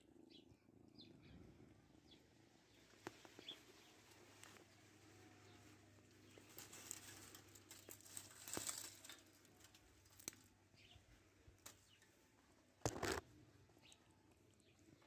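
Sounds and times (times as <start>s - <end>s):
loud rustle: 5.4s - 10.3s.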